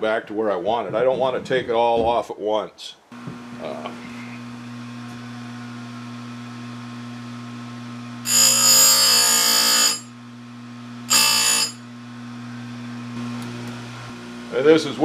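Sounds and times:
grinder motor hum: 3.2 - 15.0
grinding wheel on chain tooth: 8.3 - 10.1.

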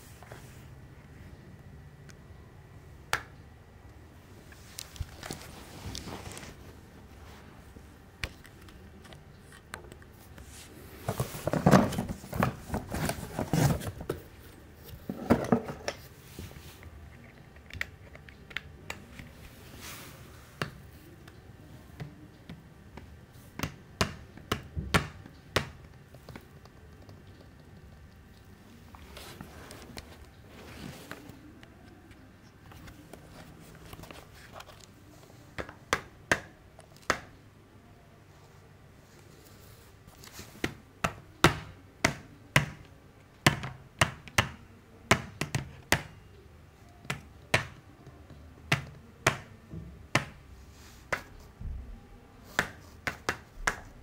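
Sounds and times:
rustling: 4.3 - 17.0, 28.2 - 35.5.

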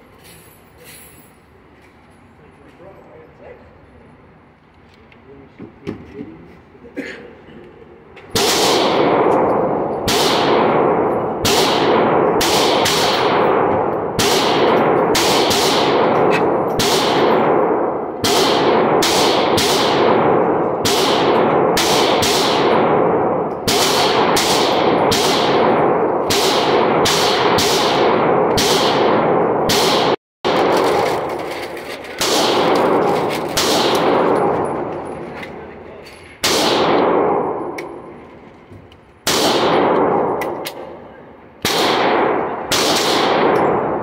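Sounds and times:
pistol shots echoing indoors: 8.3 - 35.6, 36.4 - 38.2, 39.2 - 44.0.

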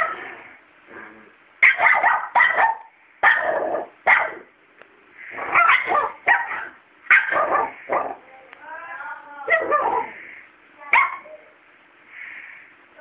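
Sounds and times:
small dog barking: 1.6 - 4.5, 5.4 - 8.2, 9.5 - 10.2, 10.9 - 11.4.

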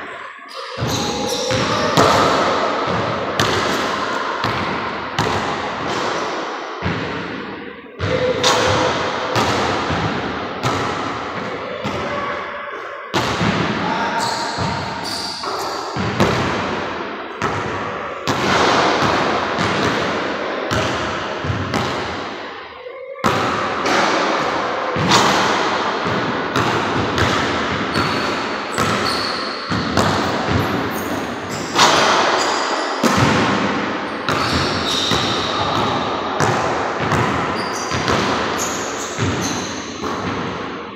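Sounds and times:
sneaker squeaks: 0.4 - 2.5, 13.8 - 16.2, 27.9 - 33.1, 34.0 - 35.9, 37.2 - 40.3
basketball bouncing on wooden floor: 14.6 - 14.9, 26.0 - 32.0.

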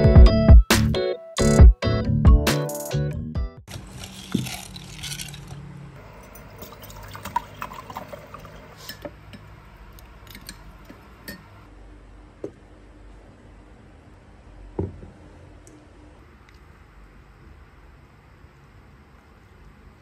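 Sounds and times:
drink pouring into mug: 3.7 - 5.6, 6.2 - 8.9
plastic spoon stirring in jug: 3.7 - 5.6.

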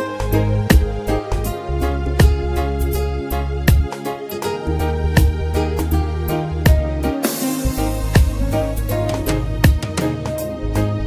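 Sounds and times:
drum hit: 0.7 - 1.0, 6.7 - 10.6.

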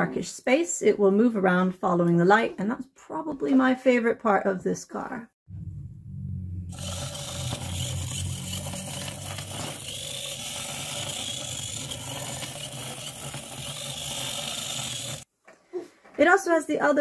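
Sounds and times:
small gear motors whirring: 6.7 - 15.3.

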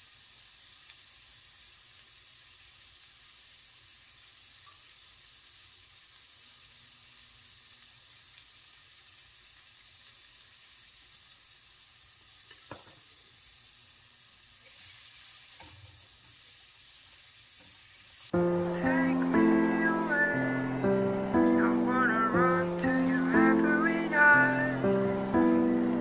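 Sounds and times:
vegetables sizzling in a pan: 0.0 - 26.0.

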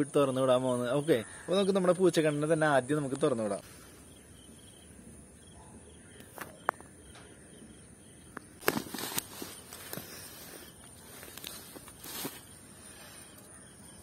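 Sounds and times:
faint high insect chirring: 0.0 - 14.0
rustling in grass: 8.6 - 13.6.

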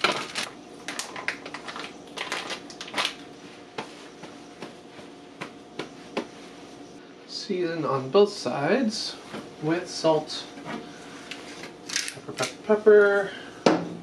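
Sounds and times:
plastic and paper crinkling: 0.0 - 3.4.

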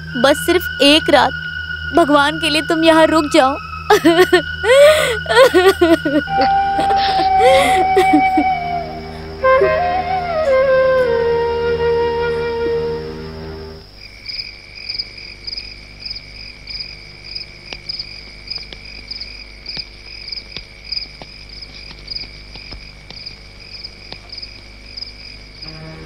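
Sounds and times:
crickets chirping: 0.0 - 26.0
faint ticks: 17.7 - 23.3.

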